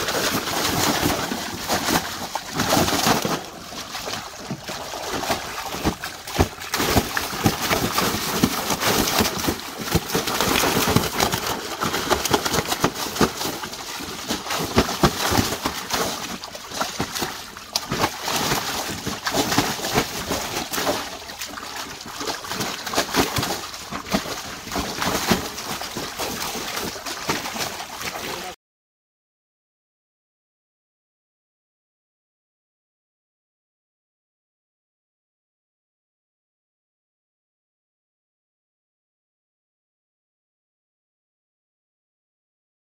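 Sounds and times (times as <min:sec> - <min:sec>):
fish splashing in water: 0:00.0 - 0:28.6
tails slapping water: 0:00.0 - 0:28.6.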